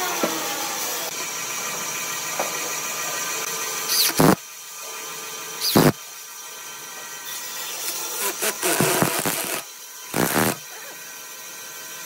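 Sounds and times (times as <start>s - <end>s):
power drill whining: 3.8s - 6.1s, 7.8s - 11.1s
steady hum: 4.0s - 4.4s, 8.6s - 10.6s.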